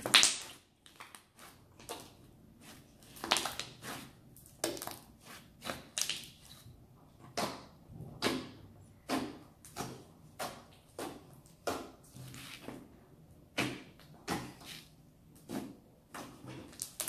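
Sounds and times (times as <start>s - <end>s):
slime clicking and popping: 16.7s - 17.0s.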